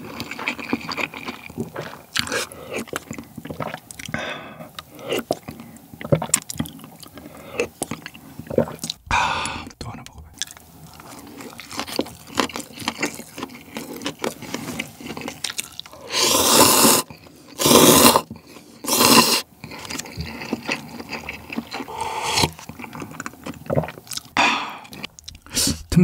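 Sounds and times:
wet chewing: 0:00.0 - 0:25.8
loud noodle slurps: 0:16.0 - 0:19.5, 0:20.4 - 0:22.9.

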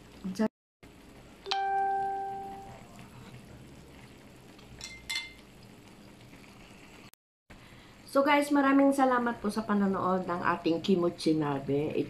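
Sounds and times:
tableware clinking: 0:04.8 - 0:05.4.

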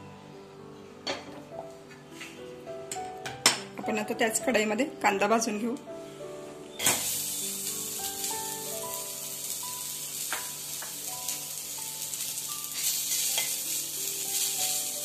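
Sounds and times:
onion pieces sizzling in a pan: 0:06.8 - 0:15.0.

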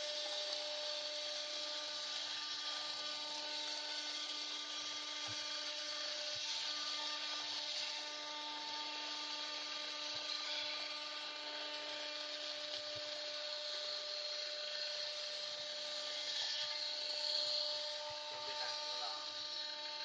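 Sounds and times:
cutter hissing in metal: 0:00.0 - 0:20.0
router spindle whine: 0:00.0 - 0:20.0.

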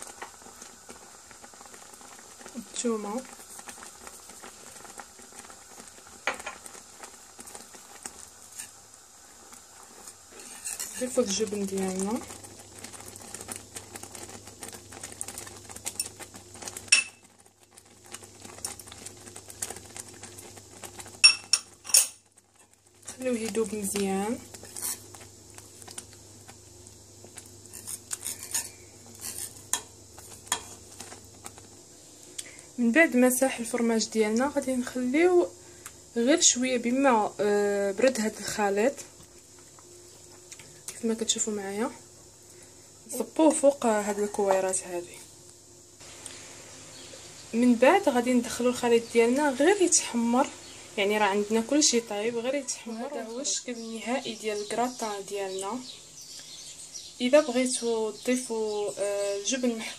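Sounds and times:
faint simmering hiss: 0:00.0 - 0:59.9
wire whisk scraping a metal pan: 0:10.3 - 0:11.2, 0:24.6 - 0:25.0, 0:27.7 - 0:29.9.

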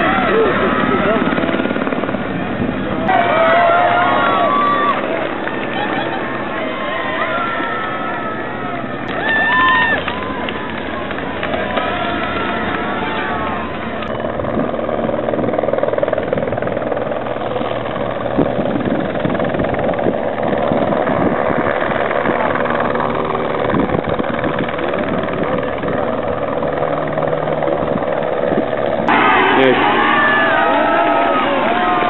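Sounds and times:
people shouting and cheering: 0:00.0 - 0:01.9, 0:03.0 - 0:14.2, 0:29.1 - 0:32.0
helicopter rotor drone: 0:00.0 - 0:32.0.

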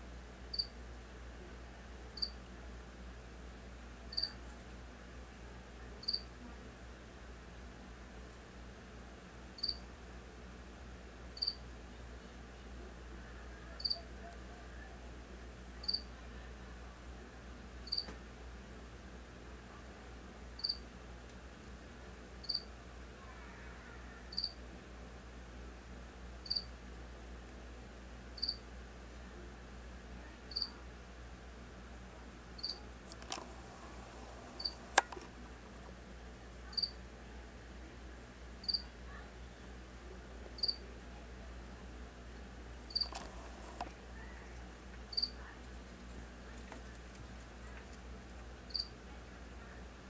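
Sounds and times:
sharp clicks: 0:33.1 - 0:35.3.

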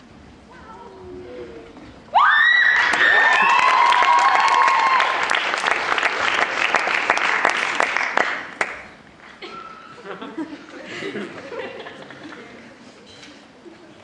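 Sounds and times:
shrill high cries: 0:02.1 - 0:05.2
audience applauding: 0:02.8 - 0:09.4.

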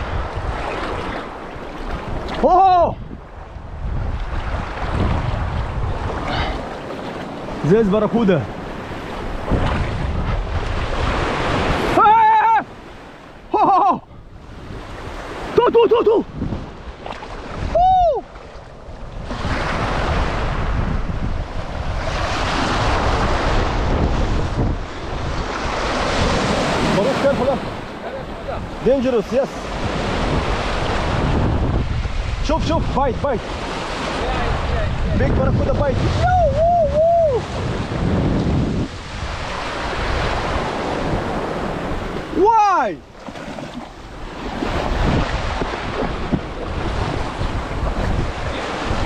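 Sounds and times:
wind rumbling on microphone: 0:00.0 - 0:12.0, 0:14.0 - 0:49.0
surf washing at water's edge: 0:00.0 - 0:49.0
man shouting: 0:02.4 - 0:03.0, 0:11.8 - 0:12.7, 0:13.5 - 0:14.1, 0:17.7 - 0:18.2, 0:36.0 - 0:37.4, 0:42.3 - 0:43.0.

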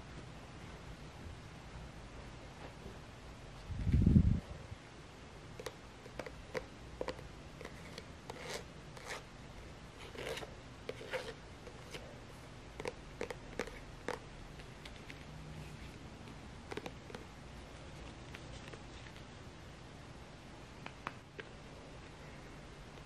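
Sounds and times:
paint scraping: 0:05.6 - 0:09.3, 0:10.0 - 0:12.2, 0:12.8 - 0:16.0.

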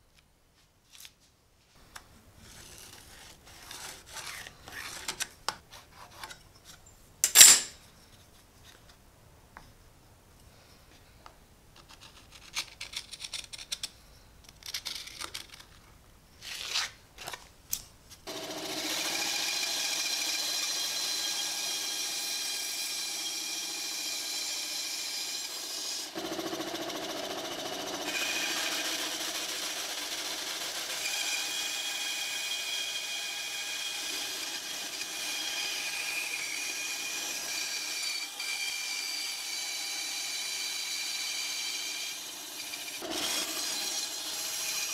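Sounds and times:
bandsaw cutting wood: 0:18.3 - 0:44.9.

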